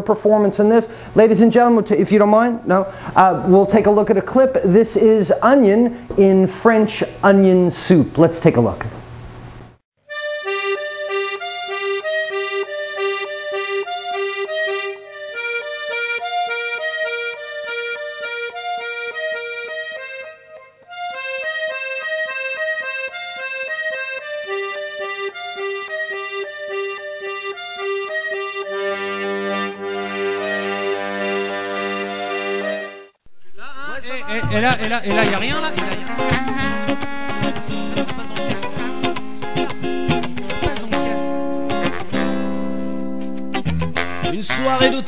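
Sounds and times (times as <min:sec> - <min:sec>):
accordion music: 0:10.0 - 0:45.0.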